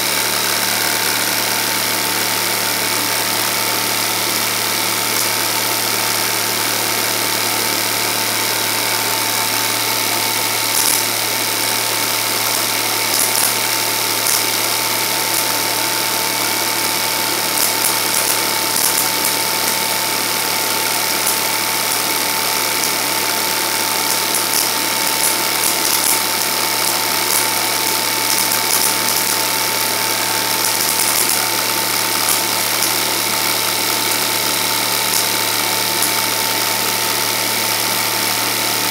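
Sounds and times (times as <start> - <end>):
film projector motor hum: 0.0 - 38.9
constant thin tone: 10.6 - 36.6.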